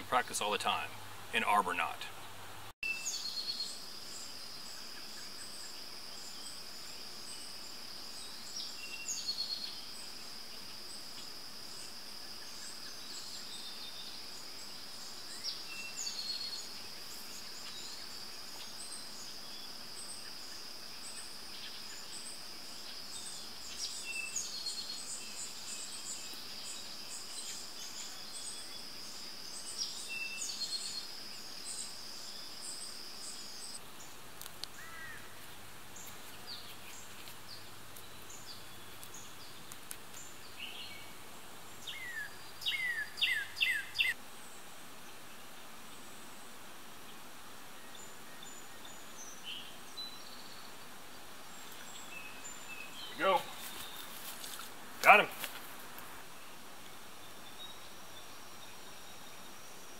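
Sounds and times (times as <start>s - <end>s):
insects droning: 2.8s - 45.2s, 45.8s - 59.9s
bird chirping: 41.8s - 44.2s.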